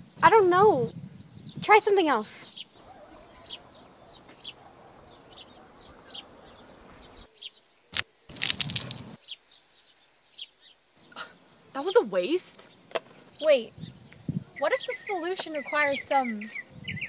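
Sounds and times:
faint outdoor hiss: 0:00.0 - 0:17.0
small birds chirping: 0:00.0 - 0:17.0
liquid splash: 0:08.3 - 0:09.2.

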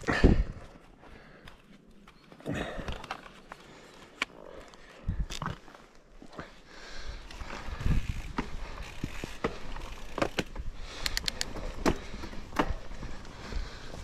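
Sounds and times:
bike tyres rumbling on dirt: 0:05.6 - 0:14.0
bike knocking and rattling: 0:07.1 - 0:14.0
sharp ticks: 0:11.0 - 0:11.5.

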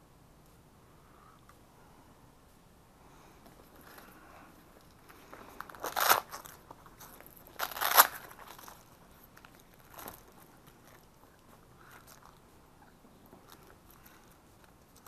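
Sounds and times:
plastic gear crinkling: 0:04.8 - 0:11.2.

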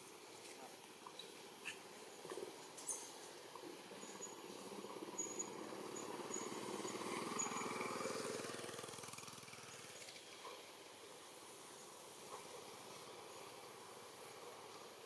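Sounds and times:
distant vehicle engine passing: 0:04.5 - 0:10.0.

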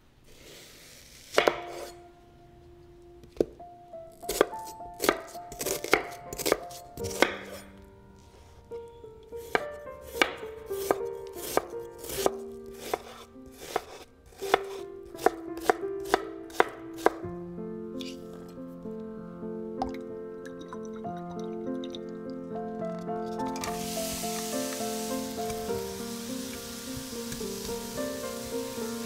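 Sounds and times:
knife chopping onion on wooden board: 0:01.3 - 0:01.9, 0:04.3 - 0:07.6, 0:09.4 - 0:17.2
soft background music: 0:01.4 - 0:29.0.

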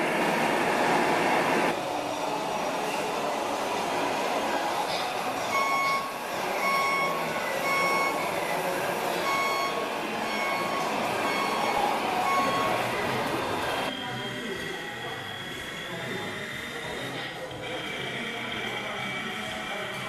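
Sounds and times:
reversing alarm beeping: 0:05.4 - 0:20.0.

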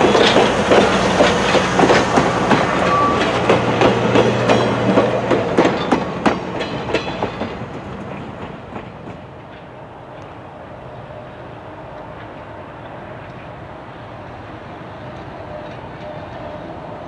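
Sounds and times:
train wheels clicking over rails: 0:00.0 - 0:10.7
distant train rumble: 0:00.0 - 0:17.0.

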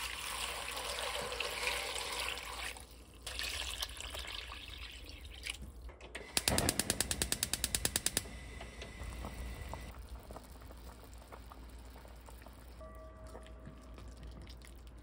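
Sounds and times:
gas stove igniter clicking: 0:06.2 - 0:09.9.

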